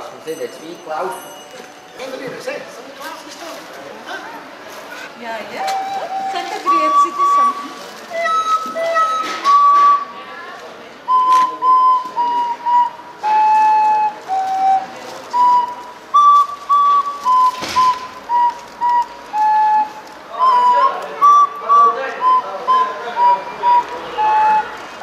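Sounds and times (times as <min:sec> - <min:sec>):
recorder melody: 0:05.6 - 0:10.2, 0:11.0 - 0:25.0.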